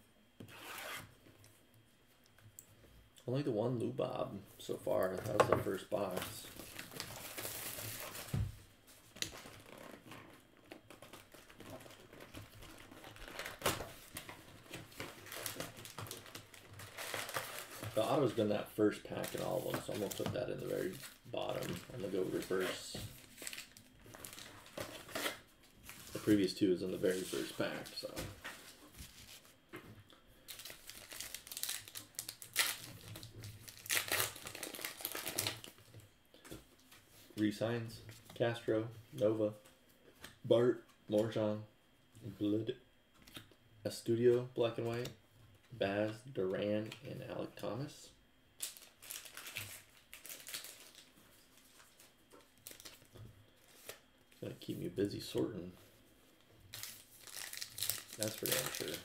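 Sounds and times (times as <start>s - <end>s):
foil wrappers crinkling: 5.9s - 8.4s, 9.1s - 29.6s, 30.4s - 35.9s, 48.6s - 54.1s, 56.7s - 59.0s.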